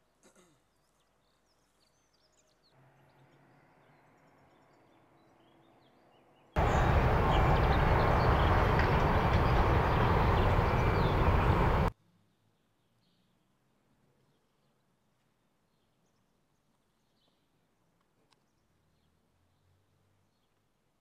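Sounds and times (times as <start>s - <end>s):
loud steady outdoor rushing noise: 6.6s - 11.9s
low hum: 6.6s - 11.9s.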